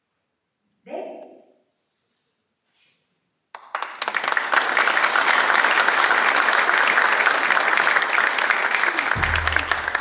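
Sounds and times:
crowd applauding: 3.5 - 10.0.

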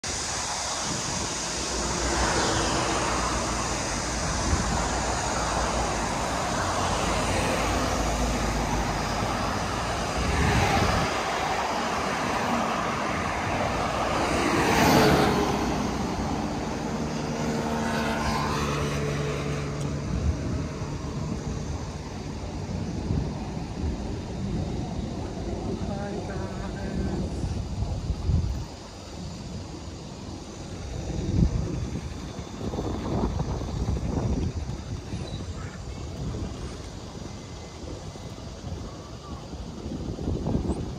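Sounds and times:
cars passing: 0.0 - 40.9
low traffic rumble: 0.0 - 40.9.

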